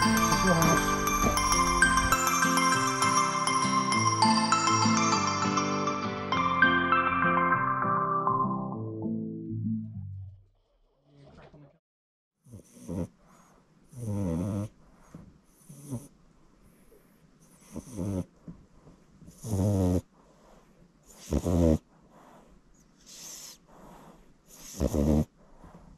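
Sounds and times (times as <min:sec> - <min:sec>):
puppy snoring: 0:00.0 - 0:02.2, 0:12.4 - 0:18.4, 0:19.2 - 0:25.9.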